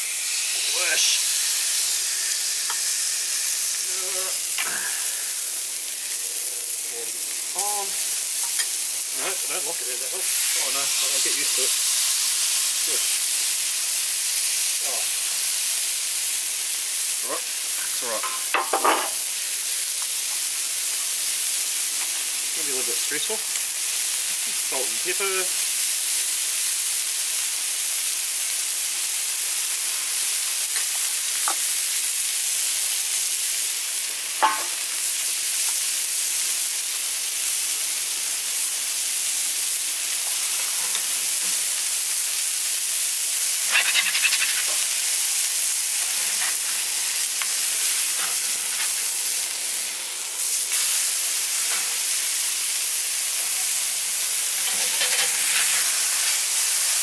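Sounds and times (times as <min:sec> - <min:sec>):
burger patties sizzling on griddle: 0:00.0 - 0:57.0
metal scraper scraping griddle: 0:54.7 - 0:55.8.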